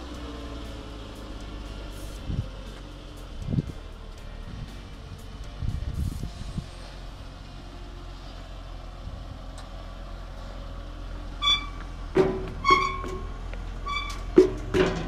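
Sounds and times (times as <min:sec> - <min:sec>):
engine idling: 0:00.0 - 0:15.0
reversing alarm beeping: 0:11.4 - 0:11.9, 0:12.6 - 0:14.3
sharp knocks: 0:12.1 - 0:13.3.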